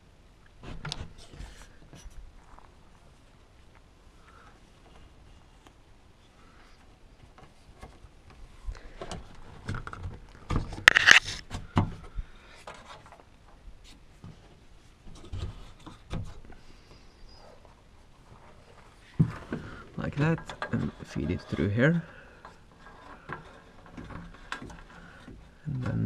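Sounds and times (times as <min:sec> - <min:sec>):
cable scraping rustle: 0:00.6 - 0:26.0.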